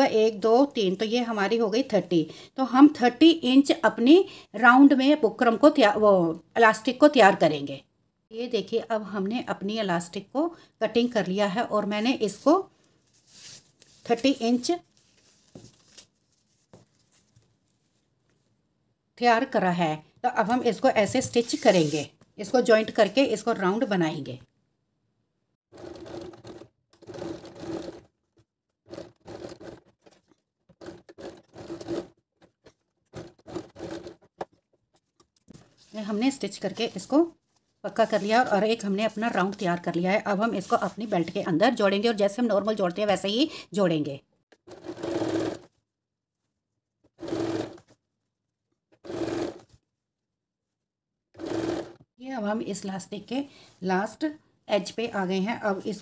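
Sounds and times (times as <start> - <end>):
electric sewing machine stitching: 25.7 - 28.1, 28.9 - 29.9, 30.8 - 32.2, 33.1 - 34.3, 44.6 - 45.7, 47.2 - 47.9, 49.0 - 49.7, 51.4 - 52.0.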